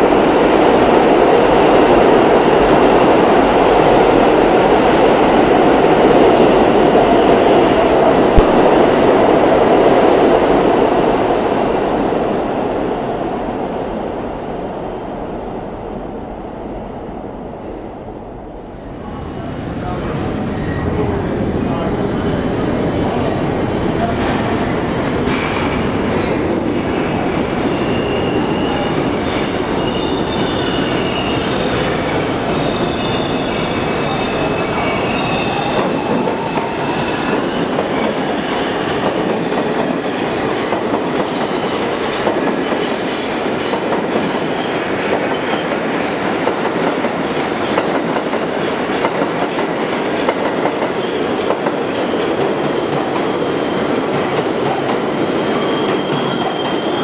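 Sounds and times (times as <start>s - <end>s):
train wheels squealing: 27.1s - 45.7s, 55.2s - 57.0s.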